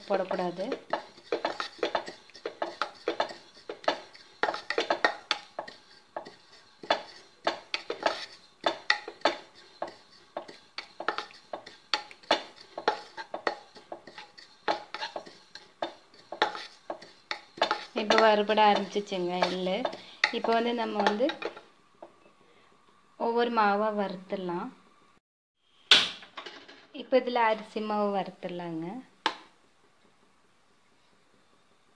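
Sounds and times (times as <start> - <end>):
spatula stirring roasting seeds: 0.0 - 22.2.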